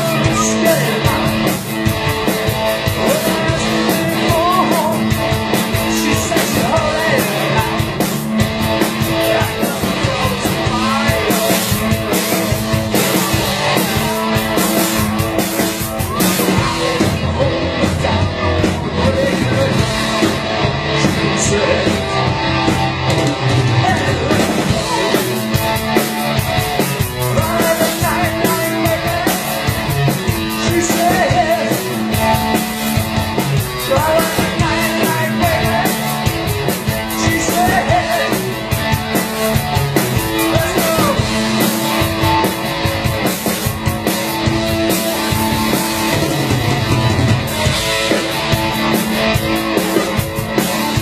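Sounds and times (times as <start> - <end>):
drum beat: 0.0 - 51.0
electric guitar: 0.0 - 51.0
rock band playing: 0.0 - 51.0.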